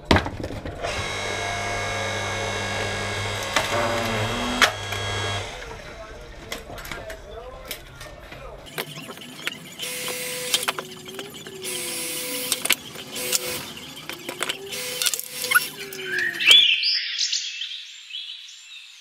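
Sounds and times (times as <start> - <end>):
log splitter motor humming: 0.8 - 5.9, 8.7 - 16.4
hydraulic hiss: 0.9 - 5.6
high chirping: 8.7 - 18.6.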